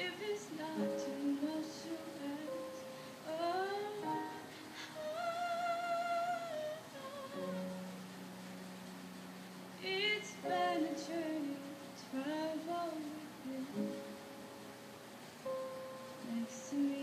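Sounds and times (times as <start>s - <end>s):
woman singing with vibrato: 0.0s - 7.9s, 9.8s - 14.0s, 16.2s - 17.0s
grand piano chords: 0.0s - 17.0s.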